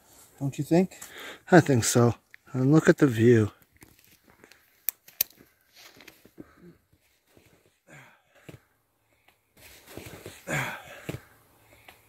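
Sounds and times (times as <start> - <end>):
person breathing hard: 1.0 - 1.5, 6.2 - 9.4, 10.0 - 12.0.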